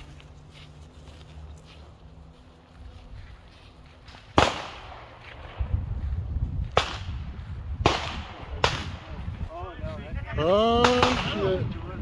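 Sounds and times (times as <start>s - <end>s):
gunshots: 4.3s - 5.6s, 7.8s - 9.1s, 10.7s - 11.6s.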